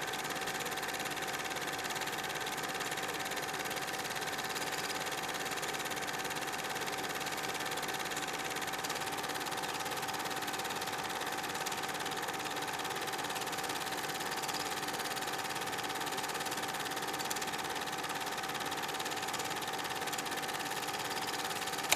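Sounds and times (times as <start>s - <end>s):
film projector clatter: 0.0s - 21.9s.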